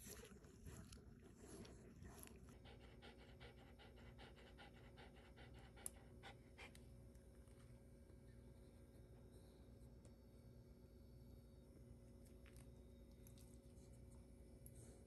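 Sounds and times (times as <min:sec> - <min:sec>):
dog panting quickly: 0:01.4 - 0:06.8.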